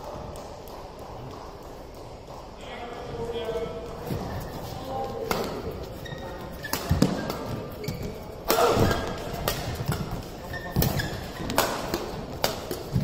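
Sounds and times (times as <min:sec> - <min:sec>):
shoes thudding and squeaking: 0:04.0 - 0:13.0
racket striking shuttlecock: 0:06.6 - 0:13.0.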